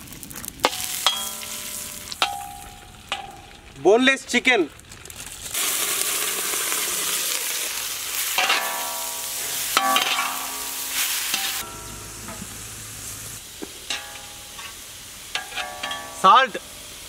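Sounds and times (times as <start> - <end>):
chicken sizzling in a wok: 0.0 - 3.8, 5.0 - 17.0
metal spatula knocking on a pan: 9.8 - 10.8.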